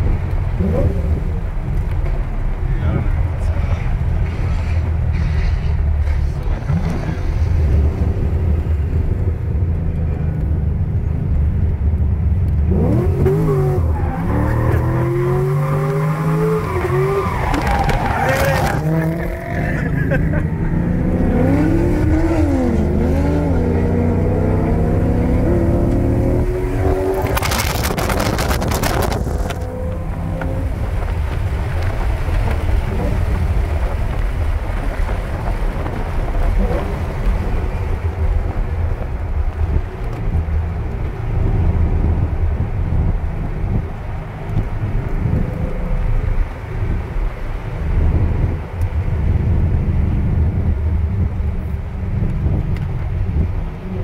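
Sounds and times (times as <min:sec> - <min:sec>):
wind noise: 0:00.0 - 0:54.0
car engine revving: 0:12.5 - 0:43.8.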